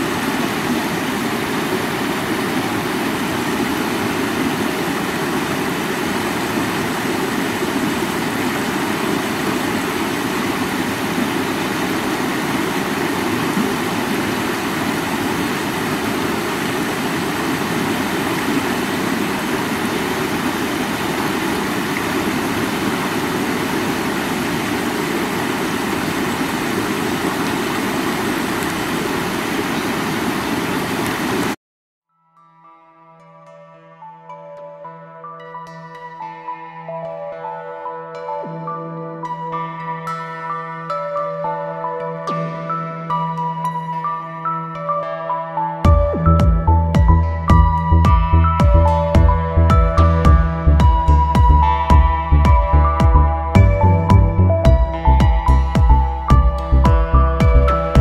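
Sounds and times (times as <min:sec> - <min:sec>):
river rushing over stones: 0:00.0 - 0:31.6.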